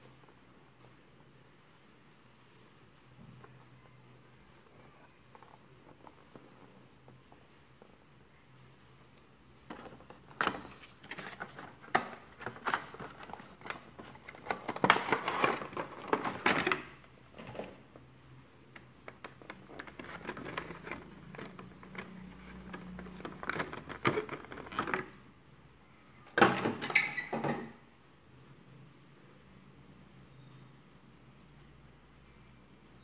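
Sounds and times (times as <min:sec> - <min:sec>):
cardboard and plastic packaging rustling: 0:09.6 - 0:25.3.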